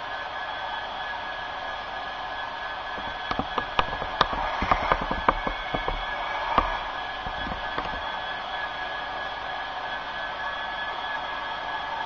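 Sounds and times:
sharp irregular clicks: 0:03.0 - 0:08.2.

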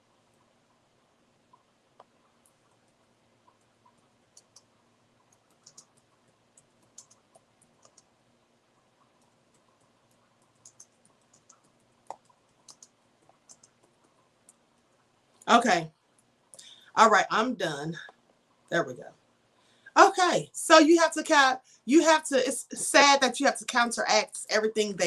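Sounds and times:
computer mouse and keys clicking: 0:01.5 - 0:08.2, 0:08.8 - 0:15.5.

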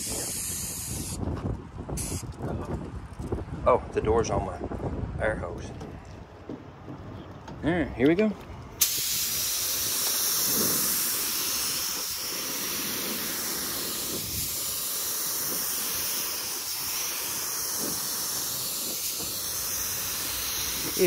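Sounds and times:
paint spray gun hissing: 0:00.0 - 0:01.2, 0:08.8 - 0:21.0.

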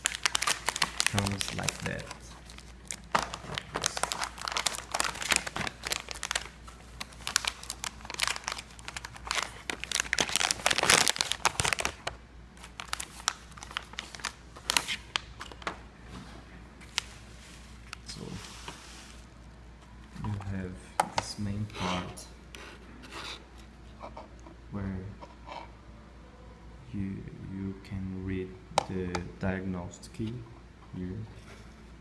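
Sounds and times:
plastic bag rustling and crackling: 0:00.0 - 0:15.7, 0:16.8 - 0:19.4.

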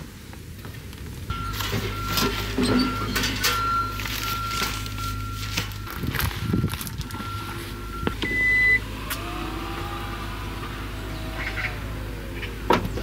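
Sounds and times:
short electronic beep: 0:01.3 - 0:08.8
car engine idling: 0:03.2 - 0:13.0.

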